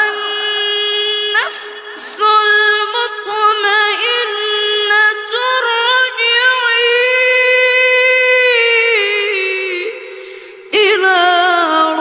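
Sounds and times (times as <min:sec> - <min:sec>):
boy reciting in melodic style: 0:00.0 - 0:12.0.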